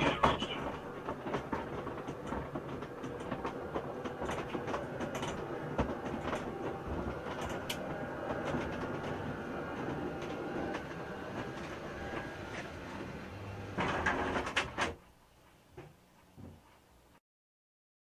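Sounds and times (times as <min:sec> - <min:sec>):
garage door rattling closed: 0:12.1 - 0:15.0.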